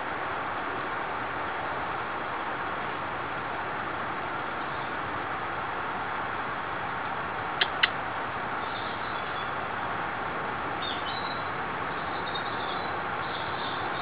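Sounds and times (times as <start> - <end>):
sharp clicks: 7.6 - 8.0.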